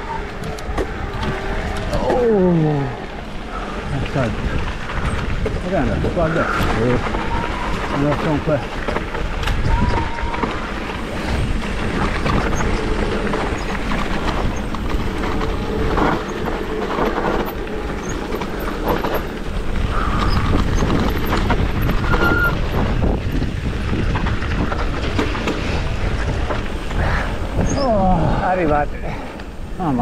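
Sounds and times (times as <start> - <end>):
bike rattling over bumps: 0.0 - 30.0
tyres on loose dirt: 0.0 - 30.0
wind buffeting microphone: 0.0 - 30.0
brief high squeaks: 22.0 - 22.6.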